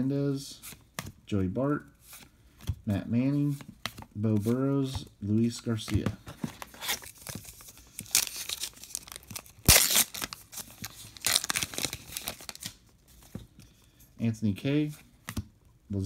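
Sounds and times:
foil wrapper crinkling and tearing: 6.8s - 12.8s.

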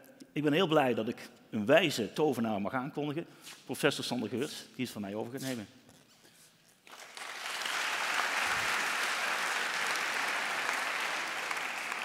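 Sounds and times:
audience applauding: 6.9s - 12.0s.

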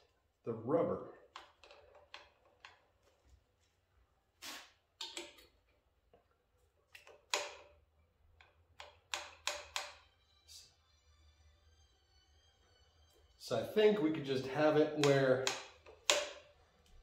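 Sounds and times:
mirror clicks taps and scrapes: 6.9s - 10.0s, 14.6s - 16.5s.

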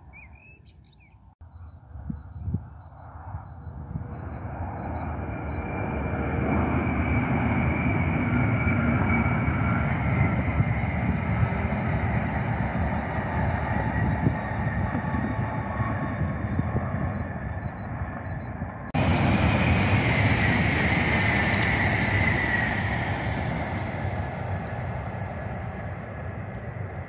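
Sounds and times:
faint high whine: 1.4s - 27.0s
high-speed train passing: 3.0s - 27.0s.

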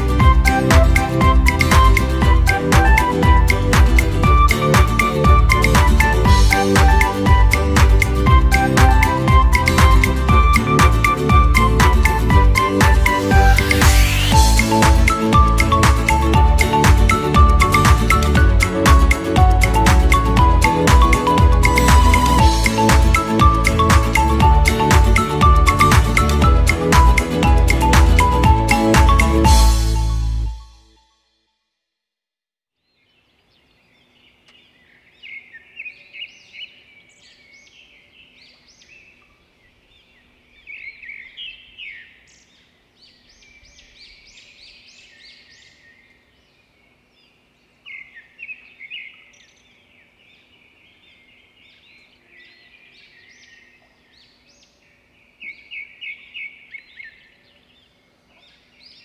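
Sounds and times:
birds singing and chirping: 33.0s - 59.0s.

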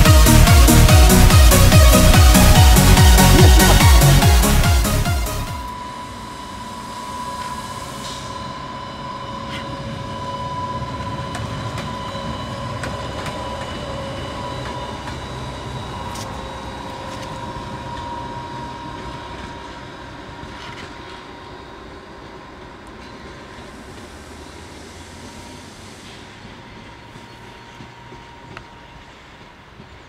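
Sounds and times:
electric locomotive whine: 0.0s - 30.0s
wheels rumbling on rail: 8.1s - 30.0s.

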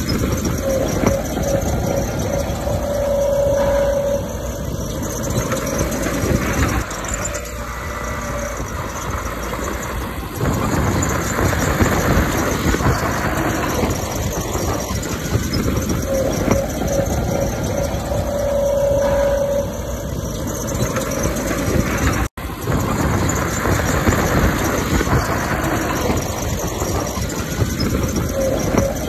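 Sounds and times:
diesel engines running: 0.0s - 29.0s
short high squeal: 0.0s - 29.0s.

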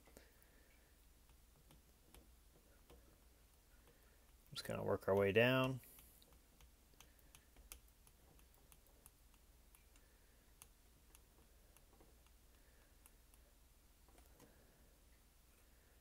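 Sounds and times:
soldering iron ticking: 1.2s - 13.5s.

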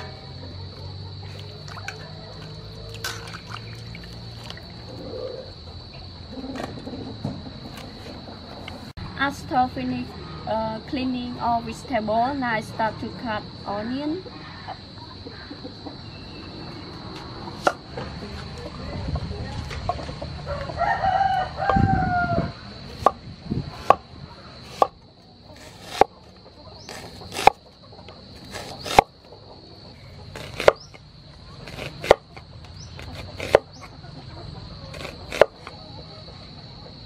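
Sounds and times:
rooster crowing: 1.1s - 3.0s, 20.4s - 22.6s
cleaver chopping on cutting board: 35.0s - 35.6s.

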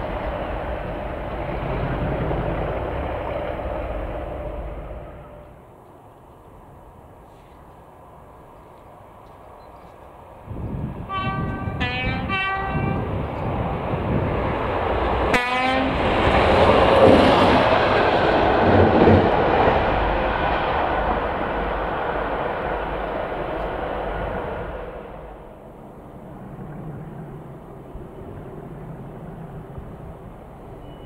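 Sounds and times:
diesel locomotive engine: 0.0s - 31.0s
locomotive horn blasts: 5.0s - 5.6s, 11.1s - 13.1s, 15.3s - 16.0s.

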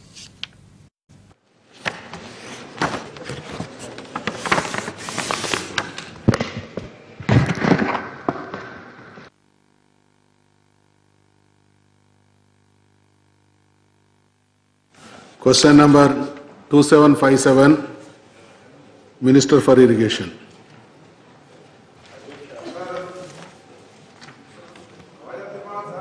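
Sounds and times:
papers being handled: 1.7s - 8.7s
faint steady hum: 8.0s - 26.0s.

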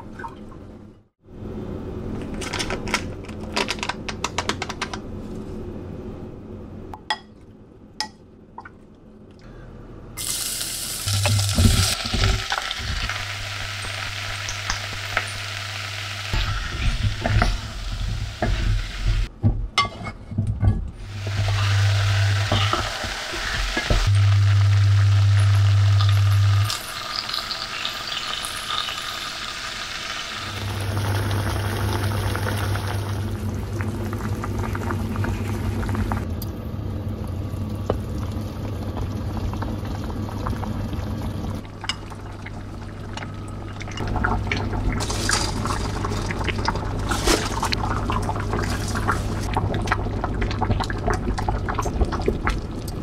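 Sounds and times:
food sizzling in a pot: 10.2s - 19.3s, 21.0s - 33.3s.

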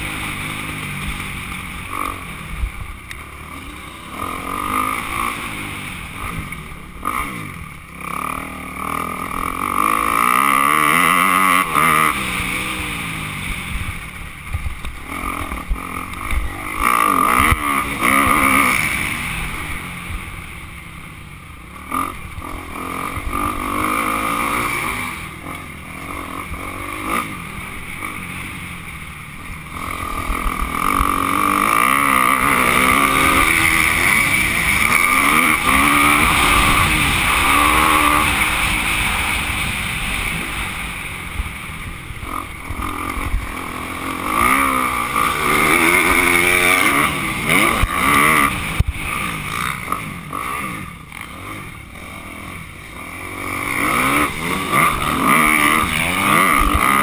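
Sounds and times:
dirt bike engine revving: 0.0s - 57.0s
wind rushing over microphone: 32.7s - 43.8s.

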